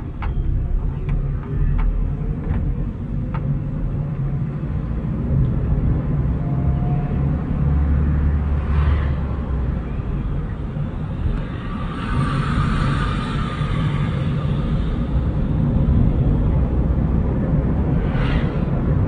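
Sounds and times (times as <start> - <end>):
car engine and road noise: 0.0 - 19.0.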